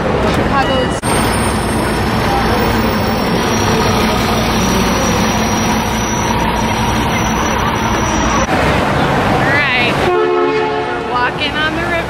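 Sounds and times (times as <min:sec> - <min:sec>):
traffic rumble: 0:00.0 - 0:12.0
faint high whine: 0:01.0 - 0:08.5.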